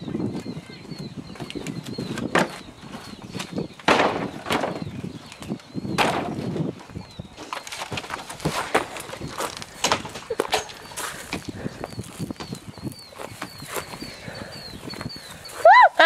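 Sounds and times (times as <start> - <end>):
small bird chirping: 0.0 - 3.9, 10.7 - 15.6
wood cracks and knocks: 3.4 - 6.5, 7.4 - 11.4.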